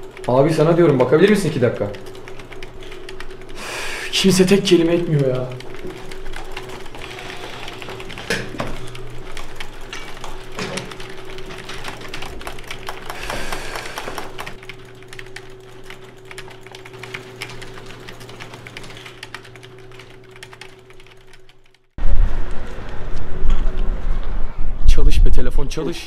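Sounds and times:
steady low hum: 0.0s - 26.0s
keyboard typing clicks: 5.0s - 21.8s.

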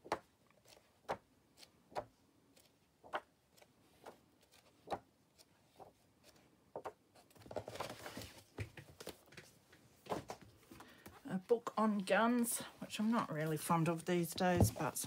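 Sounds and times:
book pages turning: 0.1s - 11.1s
paper rustling: 0.6s - 11.0s.

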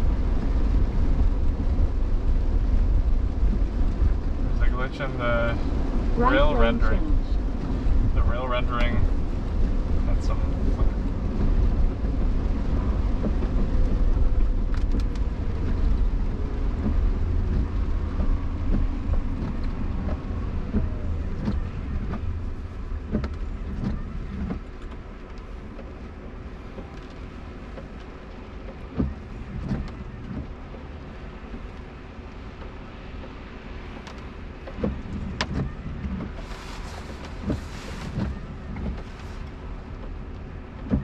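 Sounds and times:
tyres rumbling on wet road: 0.0s - 41.0s.

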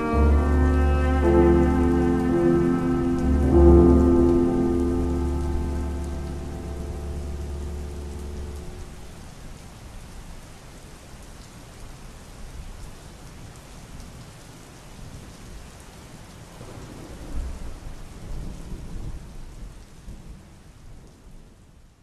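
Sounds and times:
steady rain: 0.0s - 22.0s
low roll of thunder: 16.5s - 21.6s.

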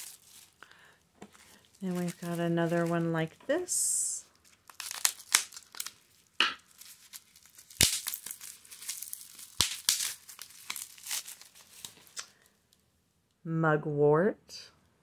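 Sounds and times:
bubble wrap crinkling and tearing: 0.0s - 3.4s, 4.2s - 12.5s.

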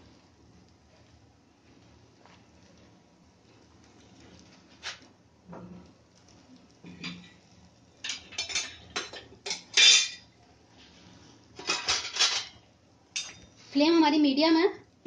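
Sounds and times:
utensil scraping frying pan: 6.8s - 12.6s.

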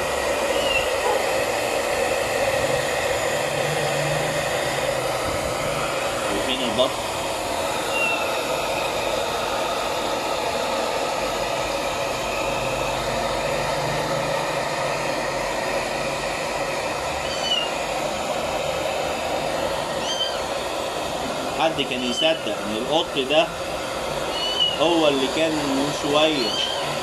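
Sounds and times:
hair dryer blowing: 0.0s - 27.0s
faint high-pitched kitten calls: 17.2s - 17.8s, 20.0s - 20.4s, 24.3s - 24.8s, 26.4s - 26.9s.

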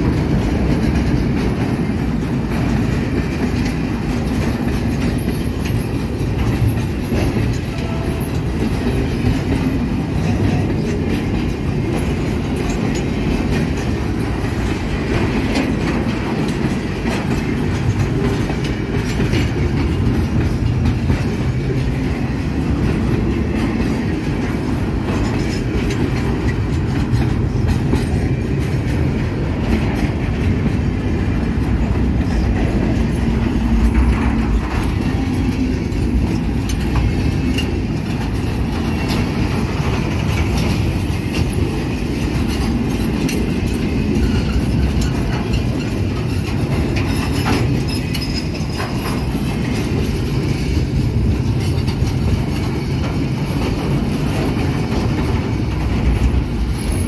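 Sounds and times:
freight train wheels rumbling: 0.0s - 57.0s
wheels clanking over rail joints: 0.0s - 57.0s.

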